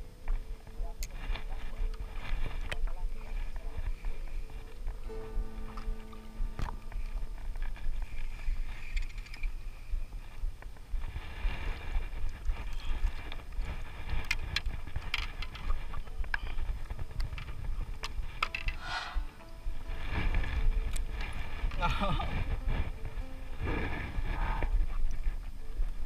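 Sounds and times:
steady low rumble: 0.0s - 8.6s, 15.7s - 21.8s
wind buffeting microphone: 0.0s - 26.0s
water against paddleboard: 0.3s - 26.0s
fishing reel clicks and taps: 8.9s - 9.5s.

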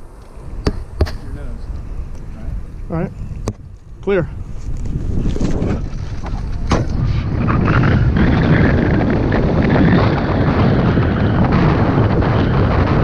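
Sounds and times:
heavy wind buffeting microphone: 0.0s - 13.0s
sharp knock: 6.7s - 7.0s.

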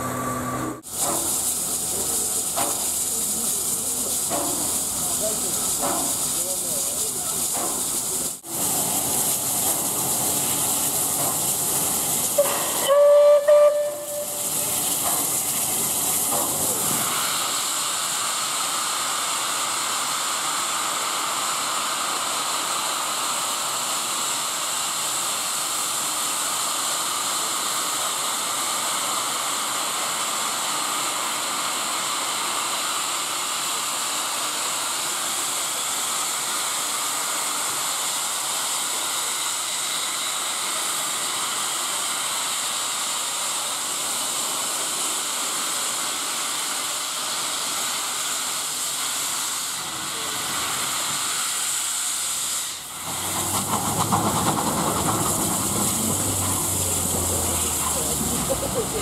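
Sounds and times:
steam locomotive hissing: 0.0s - 59.0s
steam whistle blast: 12.4s - 14.6s.

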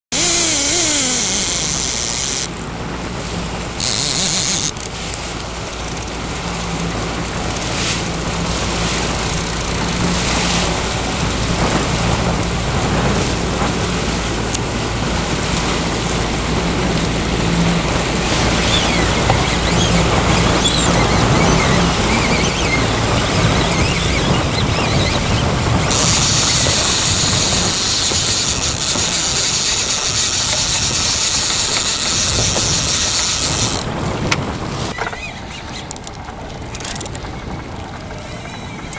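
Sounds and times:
outboard motor running: 0.0s - 38.9s
wind hiss: 0.1s - 35.0s
wake washing: 0.1s - 38.9s.

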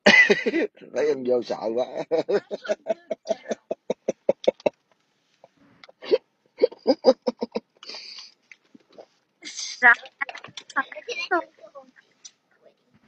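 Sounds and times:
person laughing: 0.1s - 0.7s, 1.9s - 4.7s, 6.1s - 8.2s.

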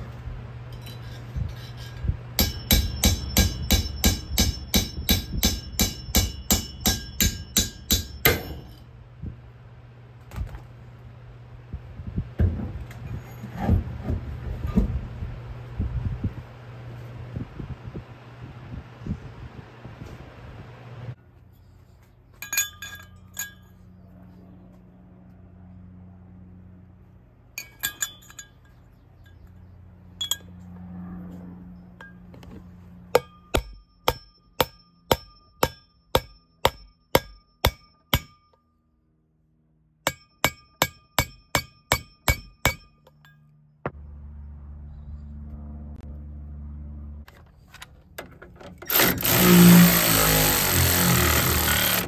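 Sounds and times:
hammer striking metal: 2.4s - 8.9s, 33.1s - 38.7s, 40.0s - 43.5s
loud mechanical noise: 48.7s - 52.0s.

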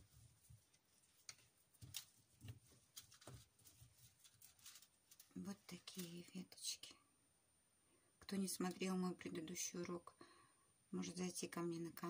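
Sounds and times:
wire branches clicking and rustling: 0.0s - 6.6s.

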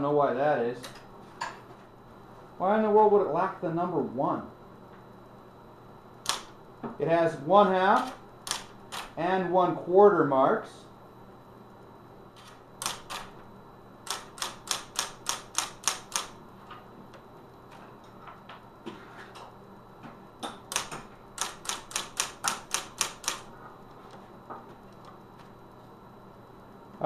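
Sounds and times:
electric typewriter key strikes: 6.2s - 6.5s, 8.0s - 9.2s, 12.4s - 13.3s, 14.0s - 16.4s, 20.5s - 23.5s.

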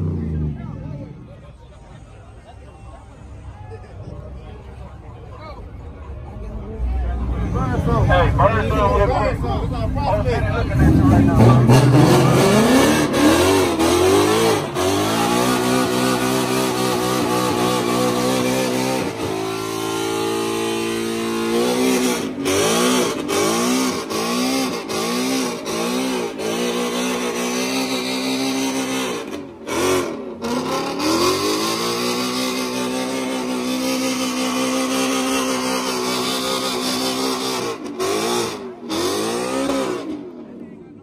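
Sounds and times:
car engine revving hard: 10.6s - 40.4s.

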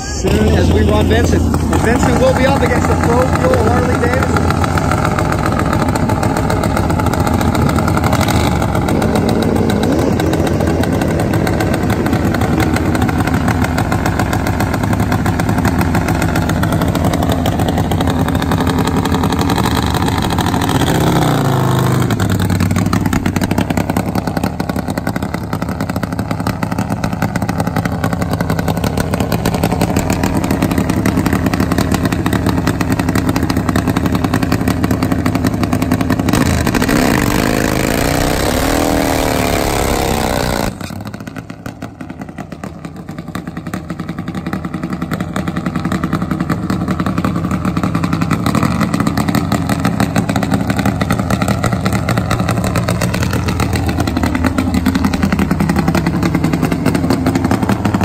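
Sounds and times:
motorcycle engine idling and revving: 0.0s - 58.0s.

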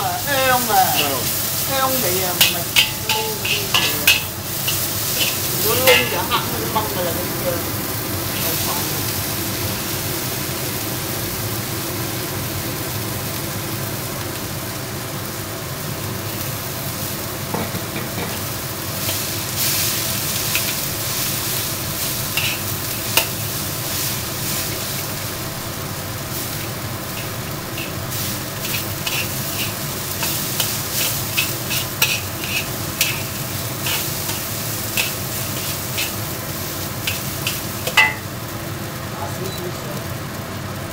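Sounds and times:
rice sizzling in a wok: 0.0s - 40.9s
metal spatula scraping and clacking: 2.4s - 6.5s, 20.4s - 20.9s, 22.4s - 23.4s, 26.6s - 36.2s, 37.0s - 38.2s.

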